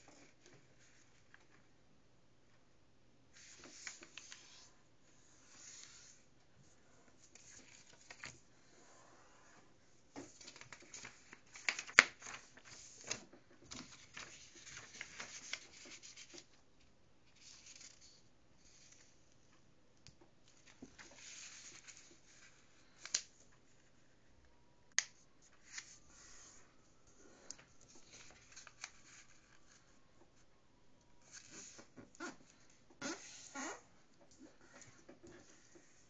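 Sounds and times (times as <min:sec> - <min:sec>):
paper rustling being folded: 0:03.4 - 0:04.7, 0:07.2 - 0:08.5, 0:10.2 - 0:19.2, 0:20.5 - 0:24.1, 0:25.1 - 0:26.8, 0:27.4 - 0:30.0.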